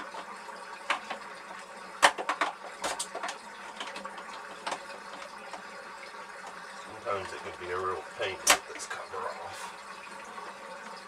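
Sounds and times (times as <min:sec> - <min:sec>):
plastic cover clicks and knocks: 0:00.9 - 0:01.2, 0:02.0 - 0:05.6.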